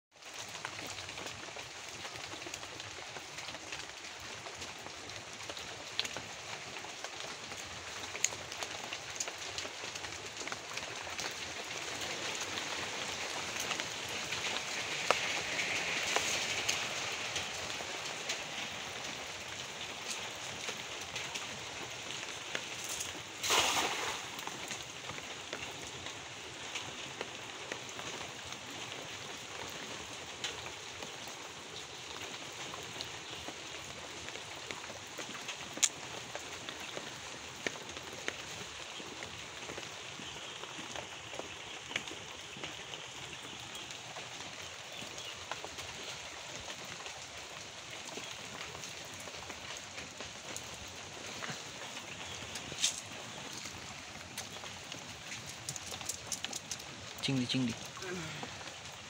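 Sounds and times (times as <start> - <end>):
water drops pattering on leaves: 0.2 - 59.0
net splashing into water: 23.4 - 24.7.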